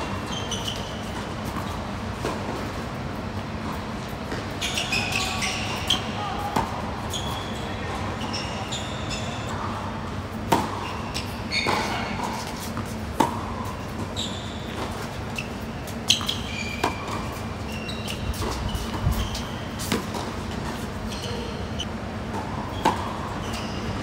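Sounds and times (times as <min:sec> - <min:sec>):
shoe squeaks on court: 0:00.0 - 0:01.8, 0:04.4 - 0:06.2, 0:07.1 - 0:09.5, 0:10.7 - 0:12.8, 0:13.7 - 0:22.0, 0:22.6 - 0:24.0
tennis ball bouncing: 0:10.5 - 0:14.1, 0:14.7 - 0:17.5, 0:18.1 - 0:20.9, 0:22.3 - 0:23.2.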